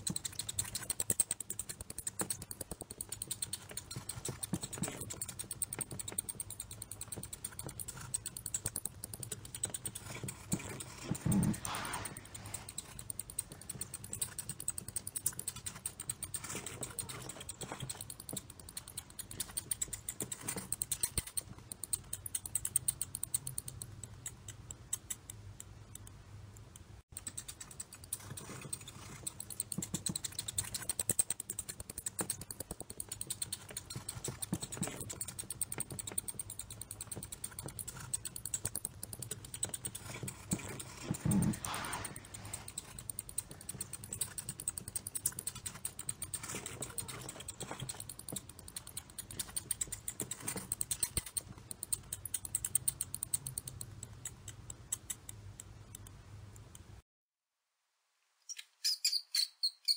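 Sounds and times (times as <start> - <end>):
mice scurrying: 27.2 - 54.3.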